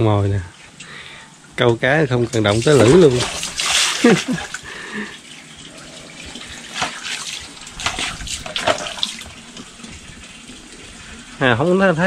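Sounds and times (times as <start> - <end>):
water running and splashing: 1.5 - 12.0
fish washed by hand: 2.4 - 12.0.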